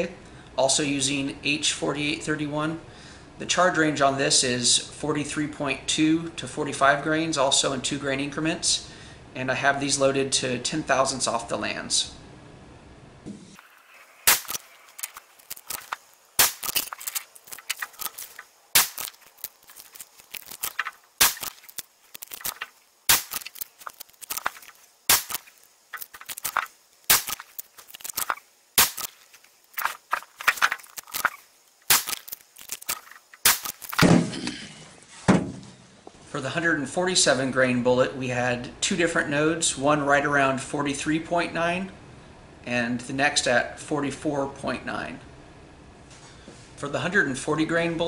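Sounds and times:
rifle shots cracking: 14.3 - 19.2, 20.6 - 23.6, 26.2 - 29.2, 31.9 - 34.1.

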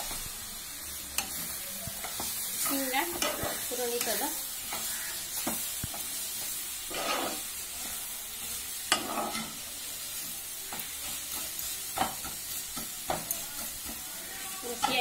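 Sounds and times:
leaves and rice sizzling in a pan: 0.0 - 15.0
spatula clacking against pan: 1.2 - 7.1, 8.8 - 9.6, 10.6 - 15.0
spatula stirring and scraping: 1.2 - 15.0.

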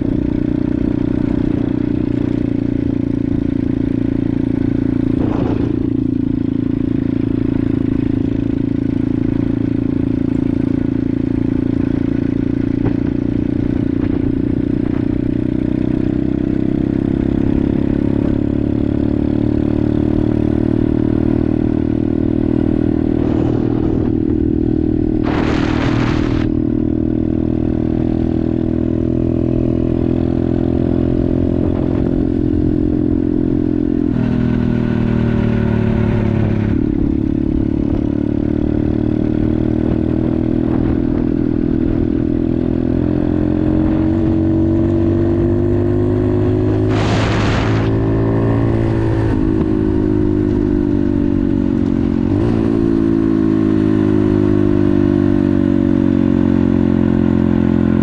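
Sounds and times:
short hiss: 46.8 - 48.0.

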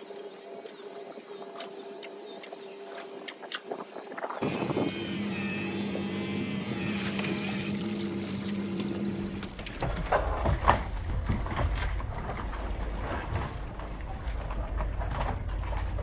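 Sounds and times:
electric motor humming: 4.4 - 9.8.

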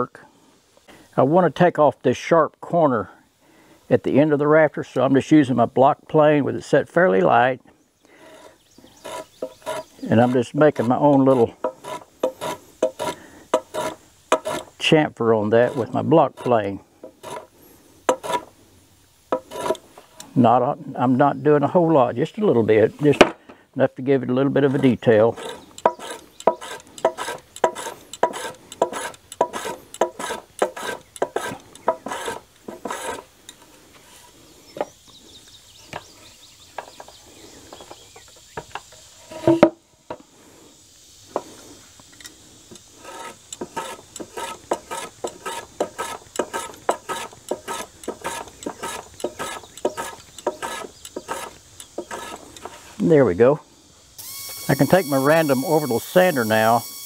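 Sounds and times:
hand plane rasping wood: 8.4 - 14.7, 15.6 - 17.5, 18.1 - 18.5, 19.4 - 19.8, 24.5 - 33.3, 43.0 - 52.8.

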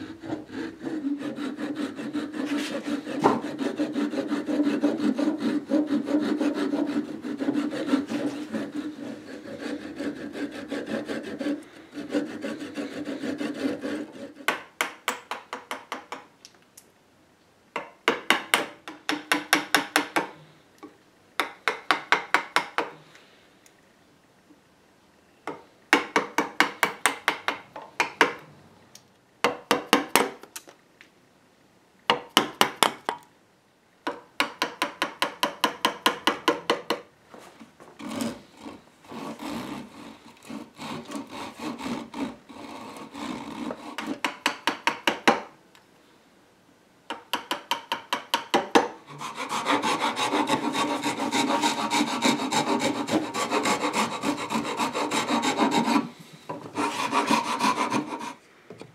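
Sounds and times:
hand rasp on wood: 0.0 - 14.6, 38.0 - 44.2, 49.1 - 58.4.

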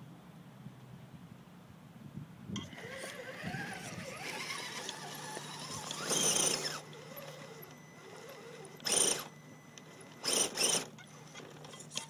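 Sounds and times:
electric motor whining: 2.6 - 12.0.

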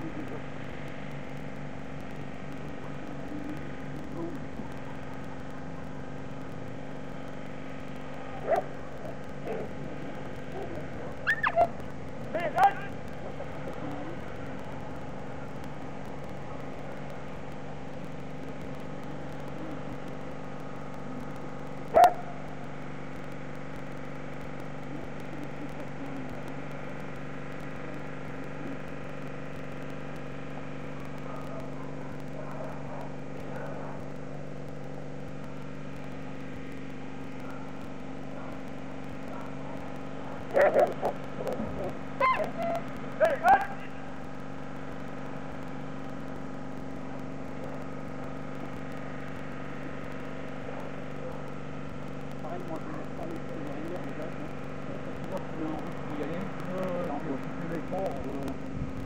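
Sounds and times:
steady mechanical hum: 0.0 - 59.0
dog barking: 8.4 - 9.7, 10.5 - 11.8, 22.0 - 22.4, 31.2 - 34.1, 39.3 - 41.6, 42.2 - 43.8.

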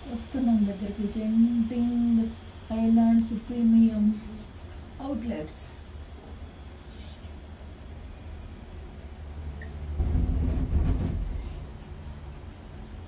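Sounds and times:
high insect chirr: 6.4 - 13.0
moving vehicle rumbling: 9.9 - 12.2.

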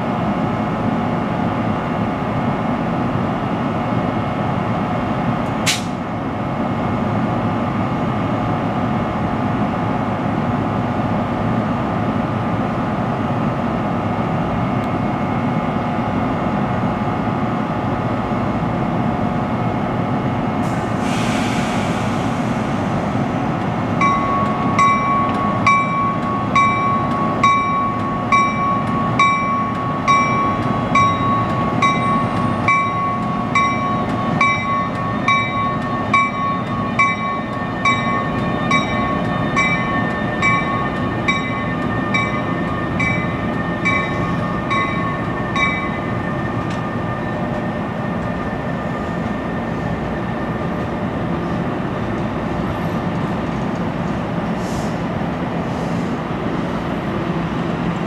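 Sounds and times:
train low rumble: 0.0 - 58.0
air hiss: 20.6 - 23.3, 54.6 - 55.0
locomotive bell ringing: 24.0 - 50.8.

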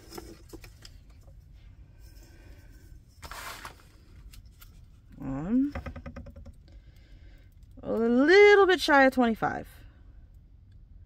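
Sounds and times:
plastic rustle: 3.1 - 5.0
plastic sheet rubbing: 3.2 - 4.0.

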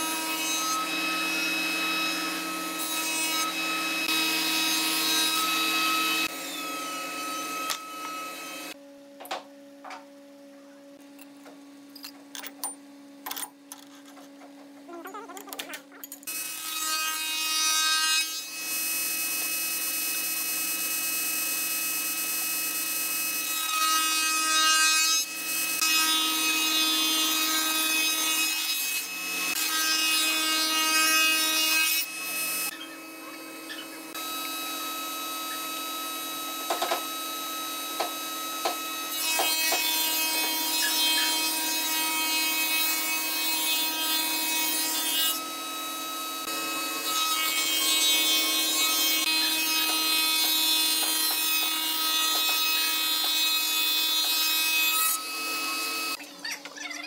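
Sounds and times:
router cutting wood: 0.0 - 8.8, 16.3 - 56.2
router whining: 3.4 - 8.8, 31.8 - 41.9, 44.9 - 56.7.

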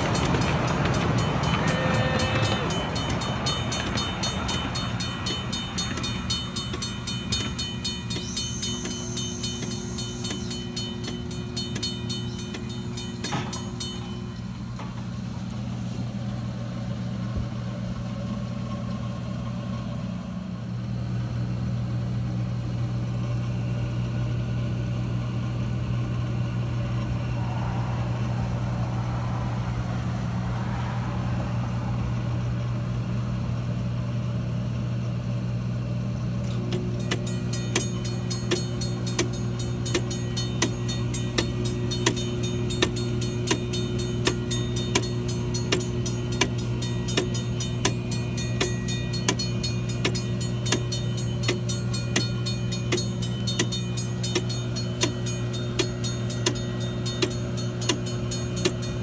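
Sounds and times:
railroad crossing bell ringing: 0.0 - 16.0, 36.4 - 59.0
steady low hum: 0.0 - 59.0.

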